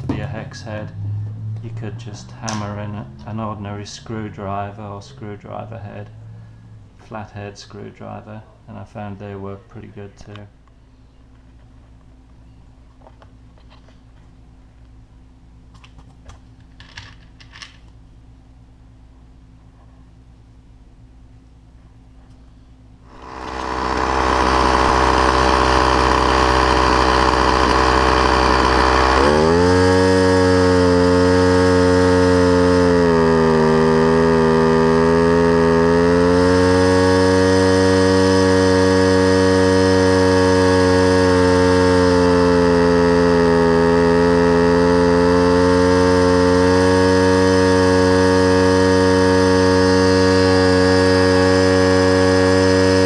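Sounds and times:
string trimmer engine running: 0.0 - 6.2, 23.1 - 53.0.

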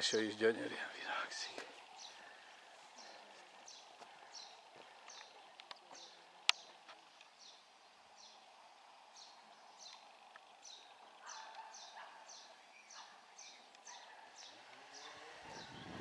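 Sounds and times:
faint bird chirping: 0.0 - 16.0.

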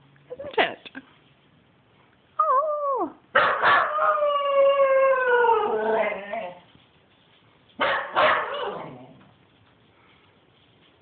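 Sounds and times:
dog howling: 2.4 - 6.7
dog barking: 3.4 - 4.2, 7.8 - 8.9.

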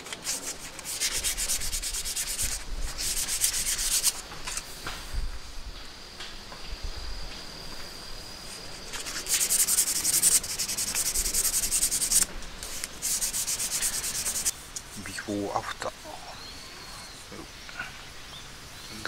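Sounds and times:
sandpaper rubbing on wood: 0.0 - 4.2, 8.6 - 14.6.

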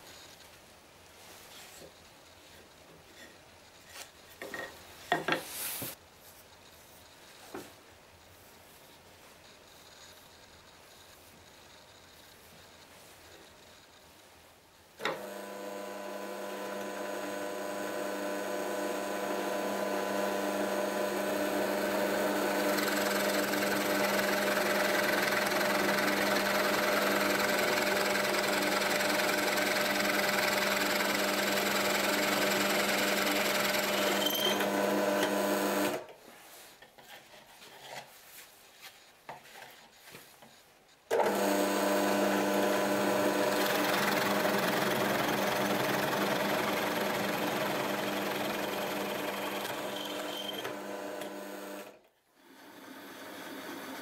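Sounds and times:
drill bit boring into wood: 15.0 - 36.0, 41.2 - 51.9
drill press motor hum: 15.0 - 36.1, 41.1 - 54.0.

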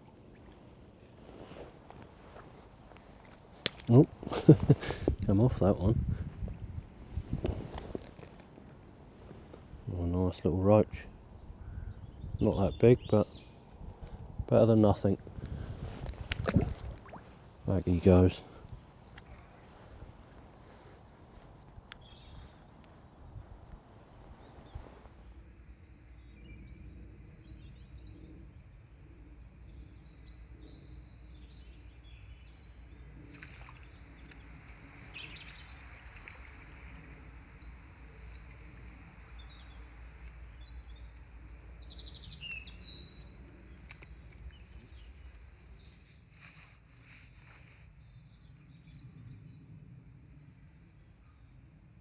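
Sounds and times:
small birds chirping: 16.3 - 49.7
faint clicks: 43.8 - 44.6.

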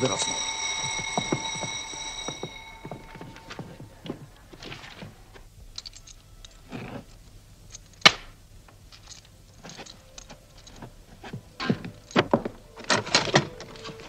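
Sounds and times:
light clicks and rustles: 4.6 - 14.0.

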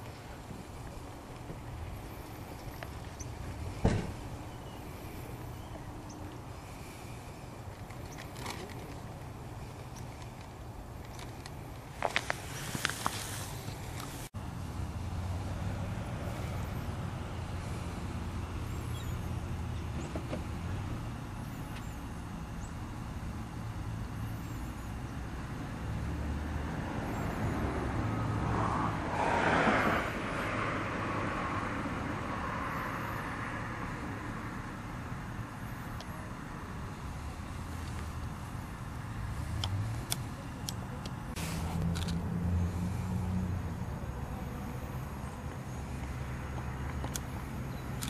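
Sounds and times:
road traffic: 0.0 - 48.0
vehicle passing: 12.3 - 21.1, 25.7 - 34.7, 38.9 - 48.0.

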